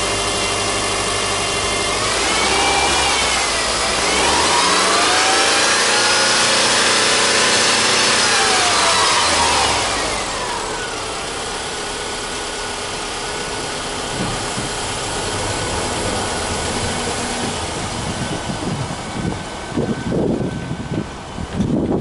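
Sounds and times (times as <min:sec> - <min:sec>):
car engine revving down to idle: 0:00.0 - 0:22.0.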